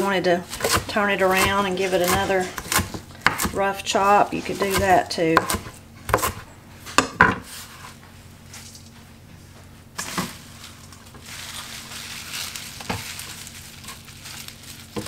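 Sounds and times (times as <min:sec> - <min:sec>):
kale leaves rustling: 0:10.0 - 0:15.0.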